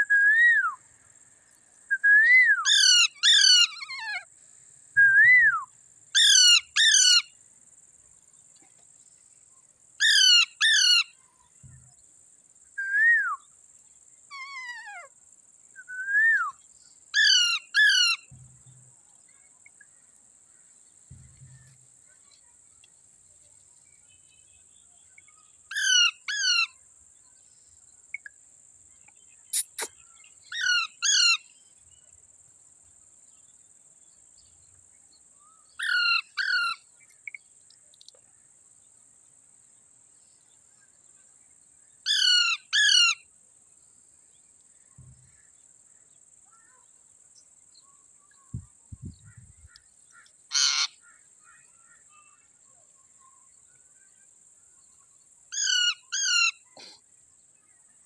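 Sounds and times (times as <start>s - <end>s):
parakeets screeching: 50.5s - 50.9s.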